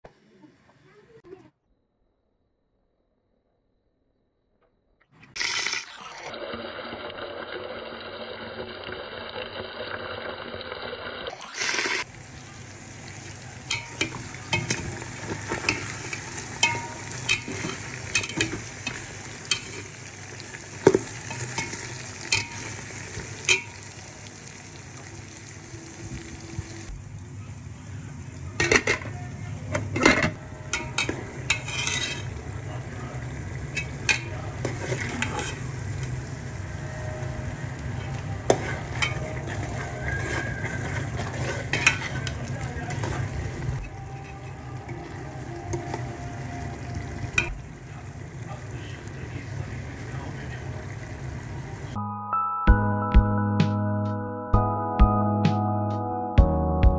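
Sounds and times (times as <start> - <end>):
meat sizzling in a pan: 11.5 - 26.9, 30.7 - 36.9, 37.9 - 51.9
spoon scraping a pan: 13.7 - 23.9, 29.8 - 32.8, 33.6 - 36.2, 38.1 - 47.6.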